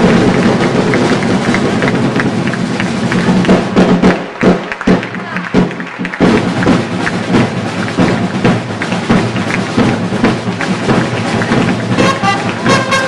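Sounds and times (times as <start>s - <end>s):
drums playing driving rhythm: 0.0s - 13.0s
brass instruments holding notes: 11.2s - 13.0s.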